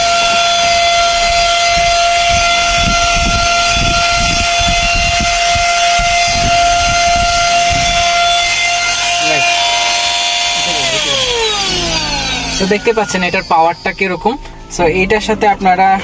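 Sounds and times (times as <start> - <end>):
handheld vacuum cleaner whine: 0.0 - 14.6.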